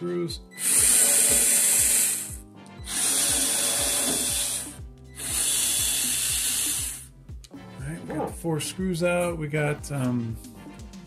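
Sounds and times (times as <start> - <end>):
cordless electric screwdriver running: 0.6 - 7.1.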